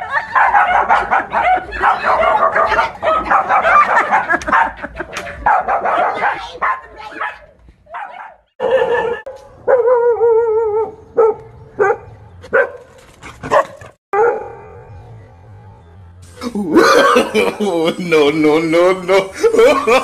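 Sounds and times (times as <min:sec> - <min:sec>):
dogs barking: 0:00.0 - 0:15.0.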